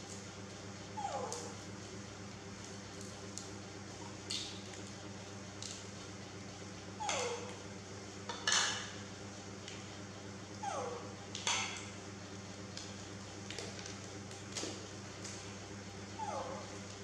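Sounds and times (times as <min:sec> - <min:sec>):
baby monkey whimpering cries: 0:01.0 - 0:01.5, 0:07.0 - 0:07.5, 0:10.6 - 0:11.1, 0:16.2 - 0:16.8.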